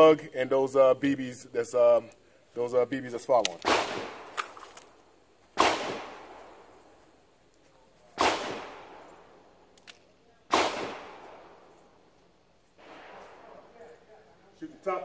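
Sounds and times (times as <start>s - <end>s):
revolver shots with echo: 5.6s - 6.4s, 8.2s - 9.3s, 10.5s - 11.7s.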